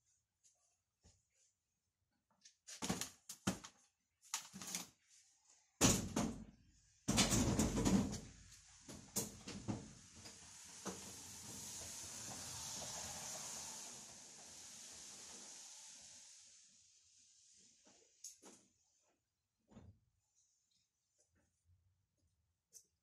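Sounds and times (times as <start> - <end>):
sharp knocks and clatter: 7.1 - 8.3
steady hiss: 8.5 - 18.2.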